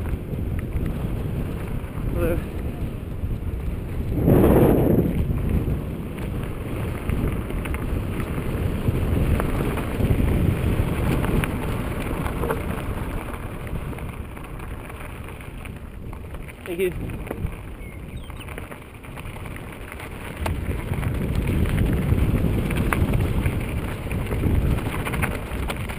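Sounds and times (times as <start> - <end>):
bike tyres rumbling on dirt: 0.0 - 25.9
stones clicking against bike: 0.0 - 25.9
wind buffeting microphone: 0.0 - 25.9.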